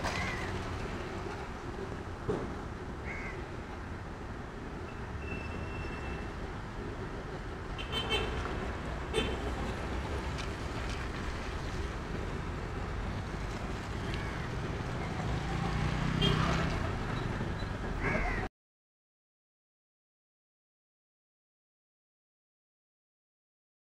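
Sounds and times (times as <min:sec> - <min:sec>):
traffic on a wet street: 0:00.0 - 0:18.5
crow cawing: 0:03.0 - 0:03.4, 0:18.0 - 0:18.5.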